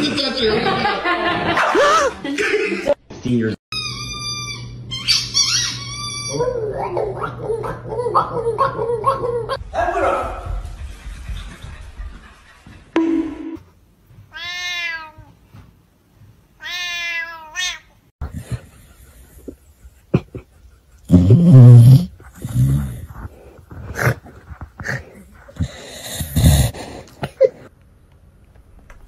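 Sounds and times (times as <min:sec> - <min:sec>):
cat meowing: 0:14.3 - 0:15.3, 0:16.6 - 0:17.9.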